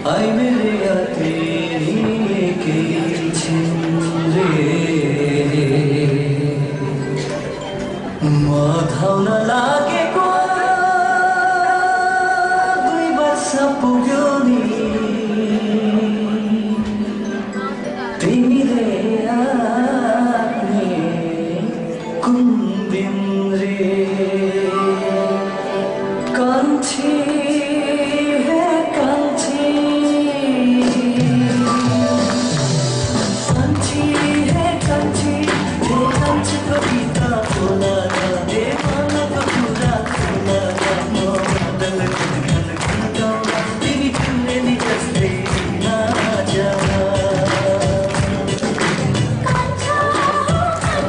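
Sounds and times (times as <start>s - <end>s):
instrumental backing: 0.0s - 51.0s
person singing: 0.0s - 51.0s
instrumental accompaniment: 30.0s - 51.0s.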